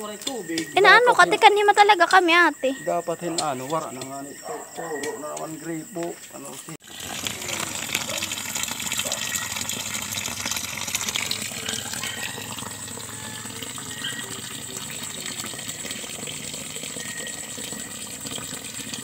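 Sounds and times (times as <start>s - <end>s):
water splashing from hose: 6.8s - 19.0s.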